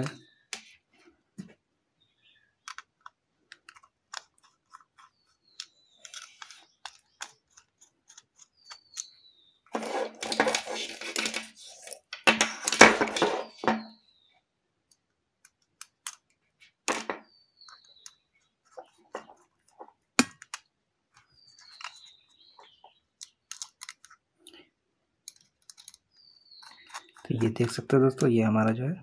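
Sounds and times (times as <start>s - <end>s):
wire and plastic board rustling: 2.7s - 13.9s, 15.8s - 24.2s, 25.3s - 27.8s
screwdriver turning screws: 9.8s - 13.6s.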